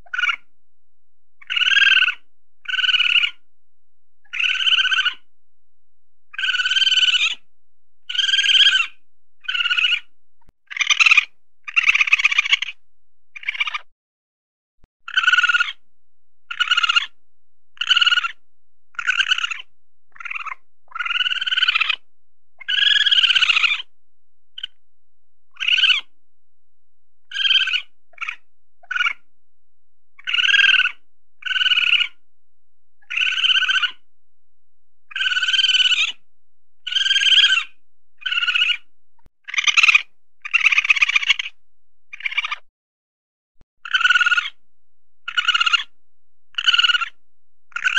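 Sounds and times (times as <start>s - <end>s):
weasel calling: 0.0s - 0.5s, 1.4s - 3.4s, 4.2s - 5.3s, 6.3s - 10.1s, 10.7s - 13.9s, 15.1s - 15.8s, 16.5s - 17.2s, 17.8s - 23.9s, 24.6s - 24.8s, 25.5s - 26.1s, 27.2s - 29.3s, 30.2s - 32.2s, 33.0s - 34.1s, 35.1s - 36.2s, 36.8s - 42.6s, 43.8s - 44.6s, 45.2s - 47.9s.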